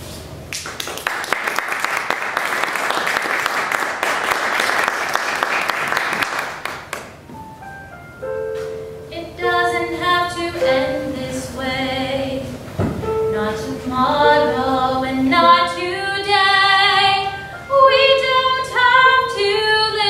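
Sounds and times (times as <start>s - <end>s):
audience applauding: 0.5s - 7.2s.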